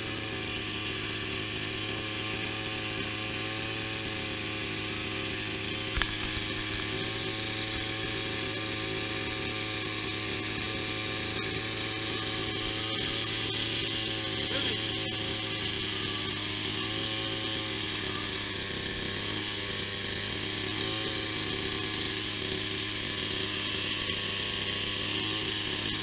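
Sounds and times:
small motor droning: 0:00.0 - 0:26.0.

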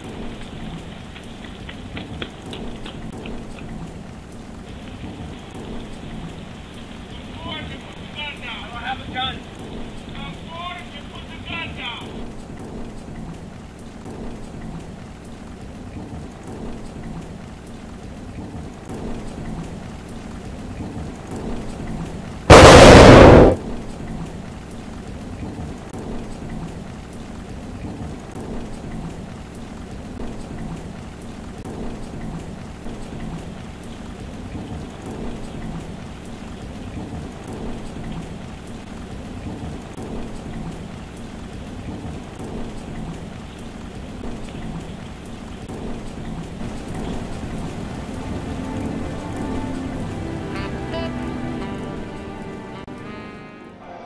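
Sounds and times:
steady rain: 0:00.0 - 0:54.0
loud pistol shot: 0:22.5 - 0:23.7.

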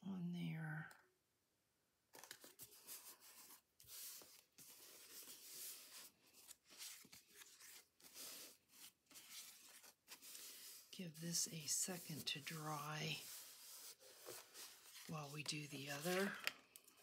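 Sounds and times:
paper rubbing and rustling: 0:02.2 - 0:17.0.

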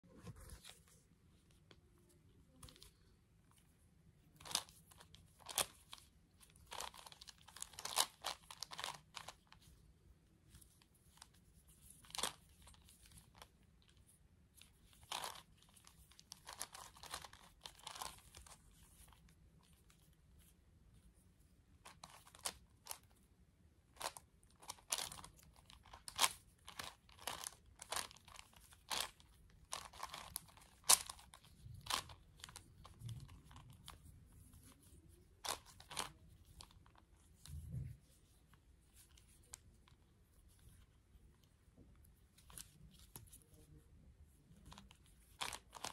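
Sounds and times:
puzzle cube plastic clicks: 0:04.4 - 0:09.6, 0:14.6 - 0:20.1, 0:23.9 - 0:37.6, 0:44.6 - 0:45.9.

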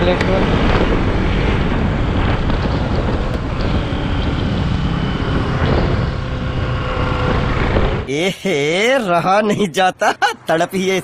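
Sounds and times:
wind rushing on microphone: 0:00.0 - 0:08.1
motorcycle engine running: 0:00.7 - 0:08.1.

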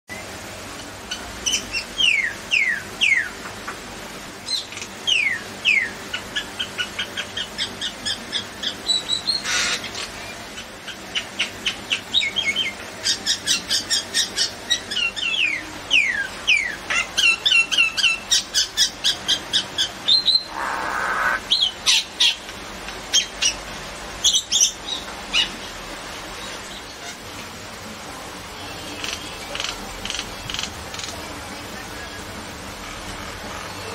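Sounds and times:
bird whistling and chattering: 0:11.1 - 0:22.4
harsh rasping bird squawks: 0:20.2 - 0:22.1.

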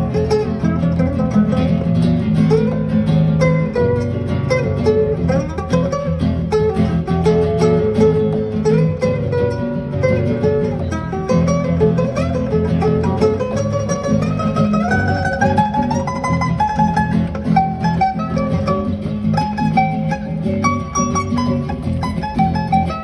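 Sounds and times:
acoustic guitar chords: 0:00.0 - 0:23.0
plucked acoustic guitar melody: 0:00.0 - 0:23.0.

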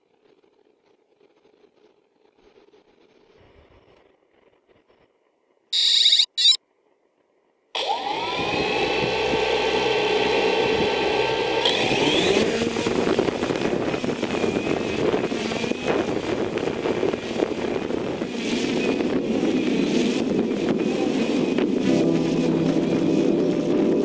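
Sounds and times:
drone propellers whining: 0:05.8 - 0:06.6, 0:07.8 - 0:24.0.

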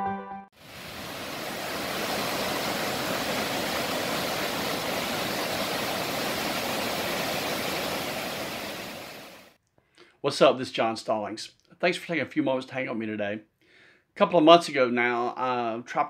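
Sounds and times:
waterfall rushing: 0:00.6 - 0:09.6.

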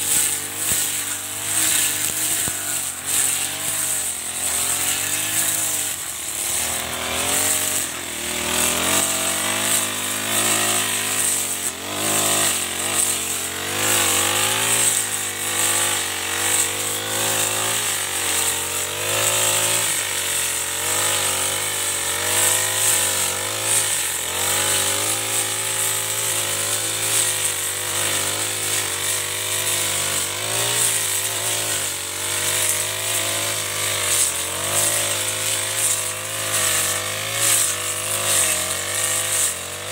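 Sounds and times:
brush cutter cutting grass: 0:00.0 - 0:39.9.

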